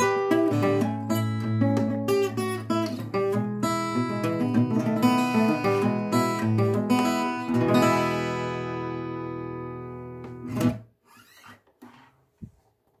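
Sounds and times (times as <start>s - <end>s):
acoustic guitar chord ringing: 3.8s - 10.6s.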